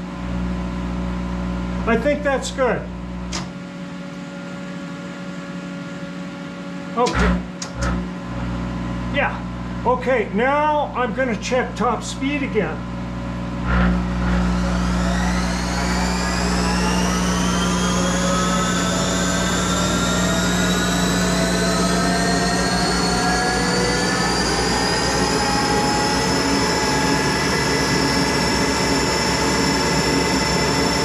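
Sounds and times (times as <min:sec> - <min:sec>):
steady low hum: 0:00.0 - 0:31.0
lathe spindle whine rising: 0:13.2 - 0:31.0.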